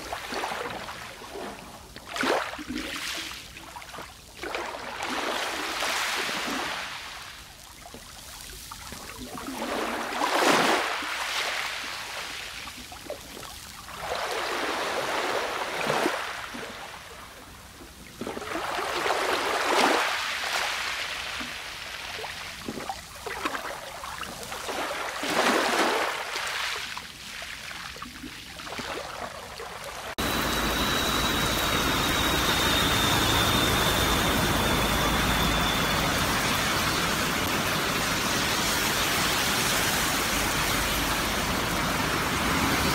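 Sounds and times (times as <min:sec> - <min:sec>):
sea waves breaking: 0:00.0 - 0:07.7, 0:08.4 - 0:42.9
faint high whine: 0:30.2 - 0:42.9.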